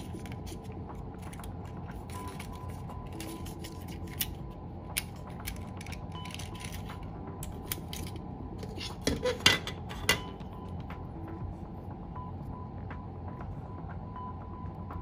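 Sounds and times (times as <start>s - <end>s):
plastic cassette clicks and rattles: 3.2s - 8.2s.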